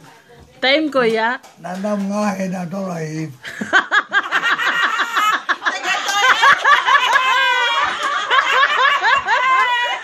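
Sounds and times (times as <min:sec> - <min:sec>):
old man talking and laughing: 0:01.6 - 0:10.0
people laughing: 0:03.4 - 0:10.0.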